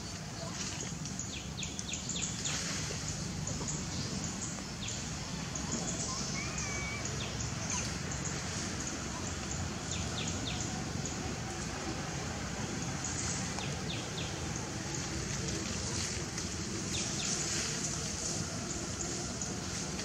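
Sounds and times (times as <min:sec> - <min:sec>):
low background noise: 0:00.0 - 0:20.0
faint bird chirps: 0:04.9 - 0:08.4.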